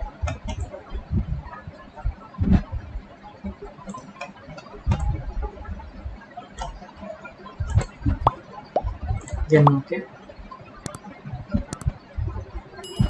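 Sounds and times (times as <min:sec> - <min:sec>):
computer mouse clicks: 0:10.8 - 0:12.0.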